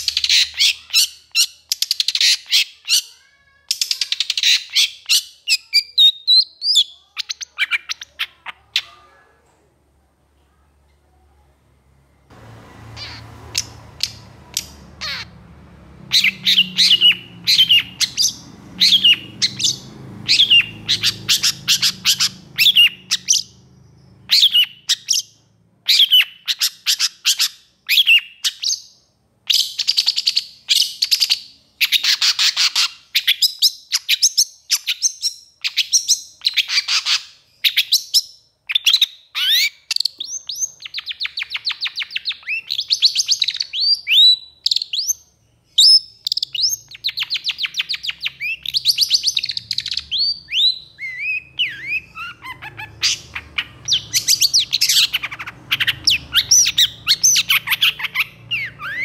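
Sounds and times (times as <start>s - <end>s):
bird singing sharp high notes: 12.5s - 26.6s.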